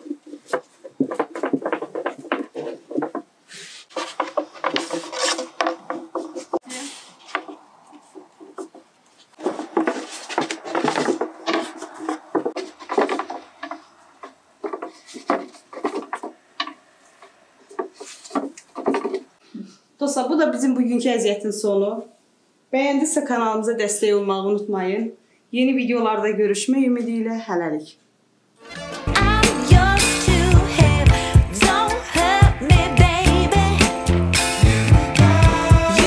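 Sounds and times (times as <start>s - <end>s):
rolling pin rolling dough on board: 3.9s - 6.6s, 7.3s - 16.8s.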